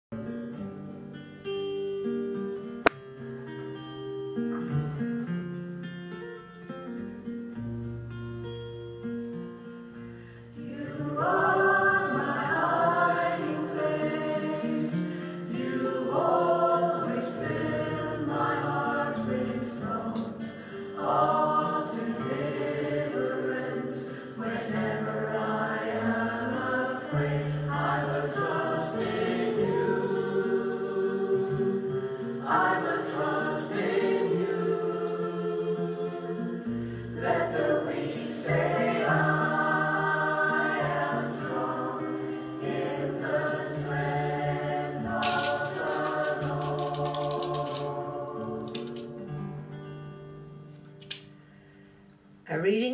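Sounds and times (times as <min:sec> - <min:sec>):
mixed choir singing in harmony: 0:10.6 - 0:49.7.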